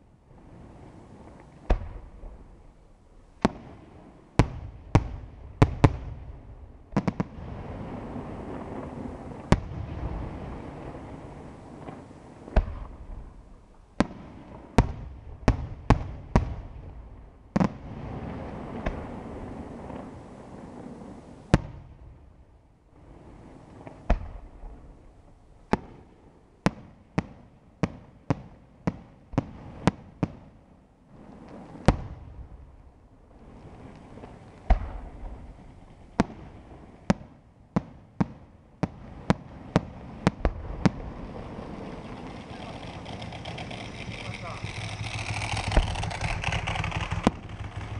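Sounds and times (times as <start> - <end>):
low rolling echo: 0.0 - 26.6, 30.6 - 37.8, 38.5 - 47.9
firework bangs: 3.4 - 22.3, 23.0 - 47.9
firework shells bursting: 40.2 - 47.9.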